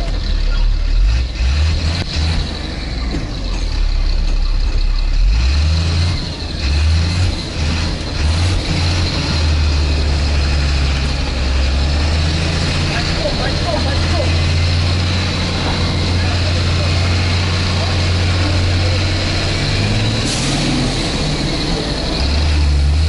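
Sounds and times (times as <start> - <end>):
fire engine drone from cab: 7.3 - 23.0.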